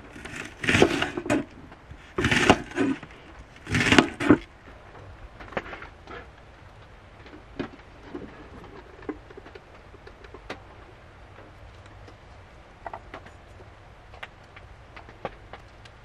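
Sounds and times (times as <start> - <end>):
faint steady background noise: 0.0 - 16.0
raindrops tapping on a van roof: 4.5 - 16.0.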